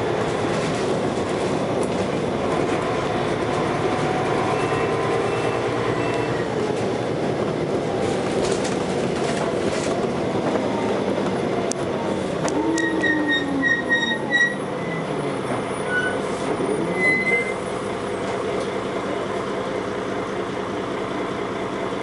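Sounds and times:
bus engine and gearbox whine: 0:00.0 - 0:22.0
short high squeaks: 0:12.7 - 0:15.1, 0:15.8 - 0:17.6.

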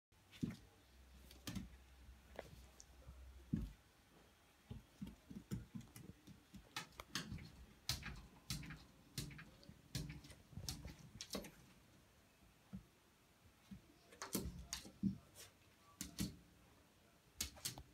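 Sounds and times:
paws tapping on mirror door: 0:04.7 - 0:11.6
dog claws clicking on wooden floor: 0:05.0 - 0:11.6.

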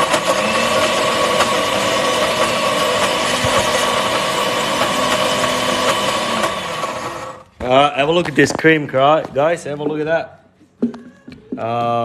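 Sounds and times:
blender motor whirring: 0:00.0 - 0:07.5.

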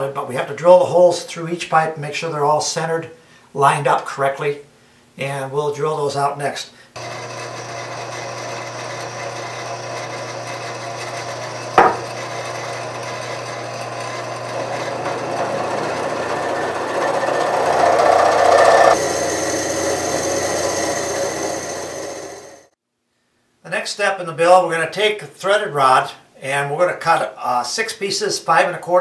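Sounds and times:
drill press grinding through pipe: 0:07.0 - 0:22.7
motor hum: 0:07.0 - 0:22.7.

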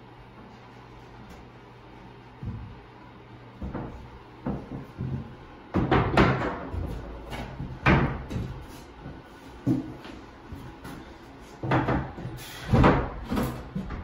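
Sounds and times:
wooden door bumping and knocking: 0:03.6 - 0:08.6, 0:11.6 - 0:14.0.

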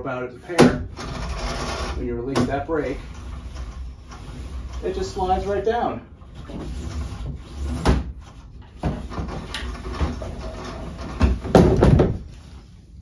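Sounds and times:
knocks and rattles: 0:06.3 - 0:12.5.

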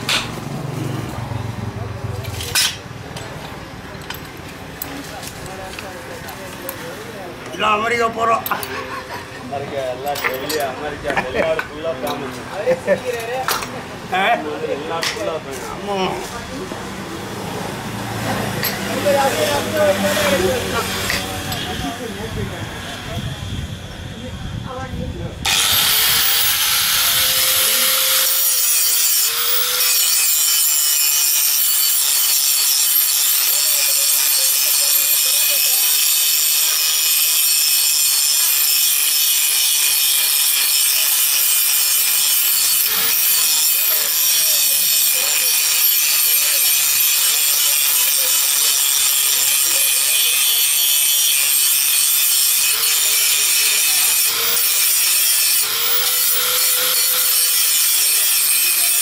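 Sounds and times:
angle grinder grinding metal: 0:17.9 - 0:22.0, 0:25.4 - 0:59.0.

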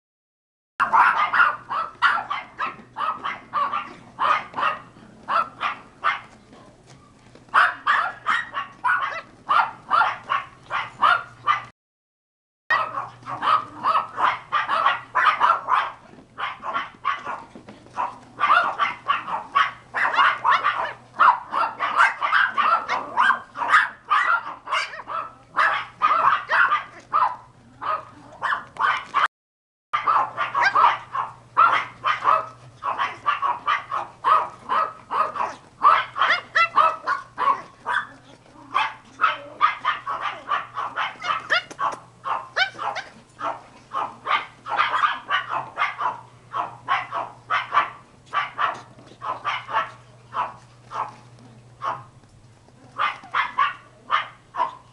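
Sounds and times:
puppies yapping and barking: 0:00.8 - 0:06.4, 0:07.5 - 0:11.7, 0:12.7 - 0:29.3, 0:30.0 - 0:54.9.

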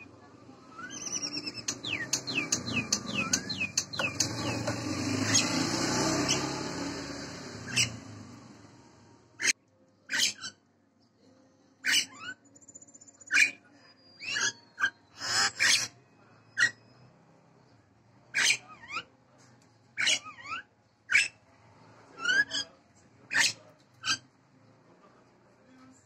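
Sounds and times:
bird whistles and harsh calls: 0:00.7 - 0:06.6, 0:07.6 - 0:08.2, 0:10.1 - 0:10.6, 0:11.8 - 0:17.0, 0:18.3 - 0:19.1, 0:20.0 - 0:21.4, 0:22.2 - 0:22.7.

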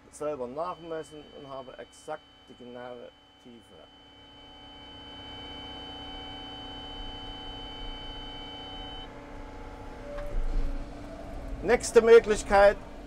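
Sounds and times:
high hydraulic whine: 0:00.0 - 0:13.0
excavator engine hum: 0:03.7 - 0:13.0.

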